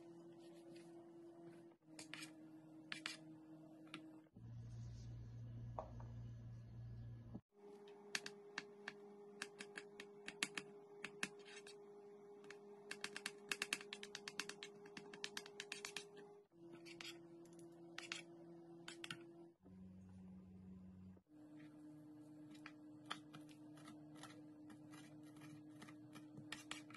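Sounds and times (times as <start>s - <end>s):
steady low hum: 4.3s - 7.4s.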